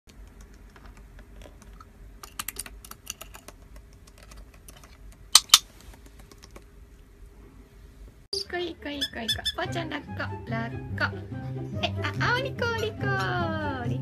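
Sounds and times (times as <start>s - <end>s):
sharp plastic clacks: 0.1s - 6.7s.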